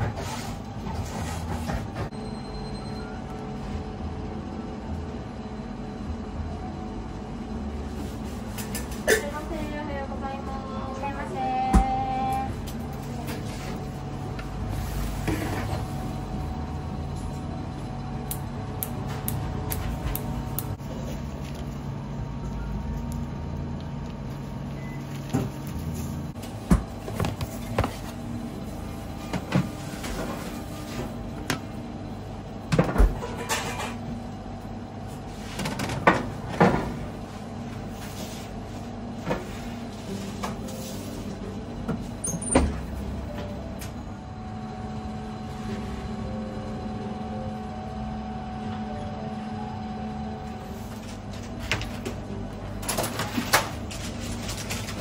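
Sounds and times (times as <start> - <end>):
machinery hum: 0.0 - 55.0.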